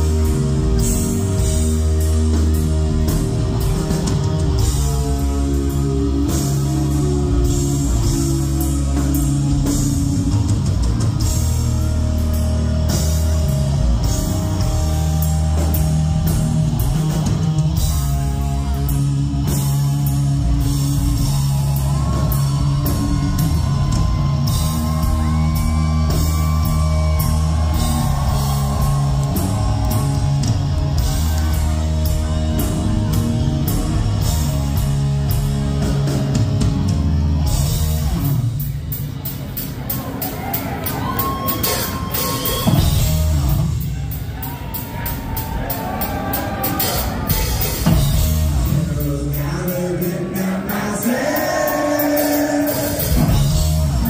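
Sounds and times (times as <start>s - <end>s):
heavy metal band playing live: 0.0s - 54.0s.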